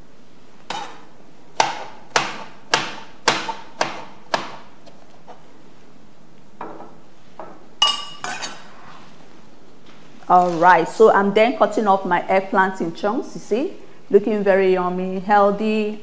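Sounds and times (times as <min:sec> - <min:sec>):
knife chopping on plastic board: 0:00.7 - 0:01.0, 0:01.6 - 0:05.0.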